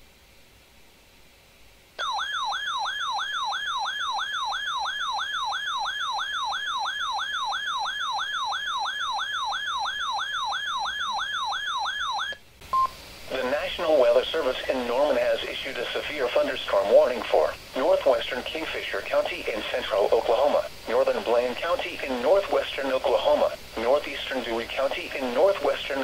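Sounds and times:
electronic alert siren warbling: 0:02.0 - 0:12.4.

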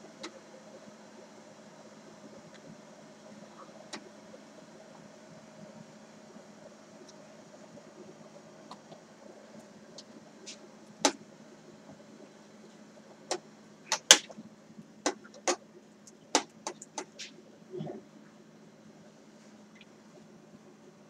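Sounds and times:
faint steady hum: 0:00.0 - 0:21.0
sharp clicks and knocks: 0:13.3 - 0:14.4, 0:15.0 - 0:18.0.

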